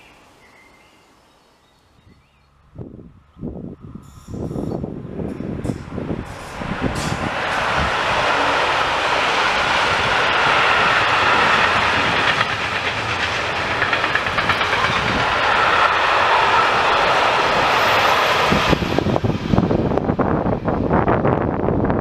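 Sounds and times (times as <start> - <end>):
train wheels rumbling on rails: 3.6 - 22.0
clickety-clack wheel beats: 11.2 - 15.9.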